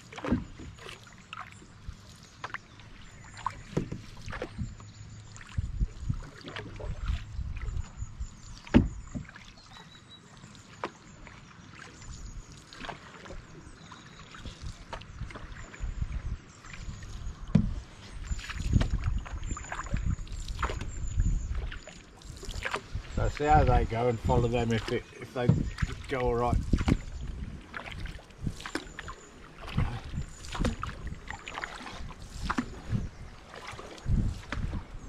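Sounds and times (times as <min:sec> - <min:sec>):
paddles pulling through water: 0:00.0 - 0:35.0.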